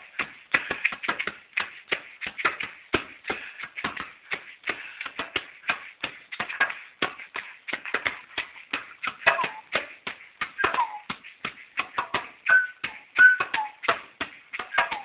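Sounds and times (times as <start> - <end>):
djembe slapped by hand: 5.2 - 15.0.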